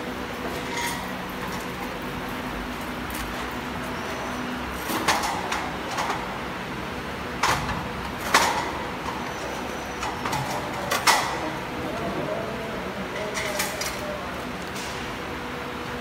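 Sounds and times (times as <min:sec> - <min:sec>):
steady background noise: 0:00.0 - 0:16.0
metal parts clanking: 0:00.6 - 0:01.7, 0:13.2 - 0:14.0.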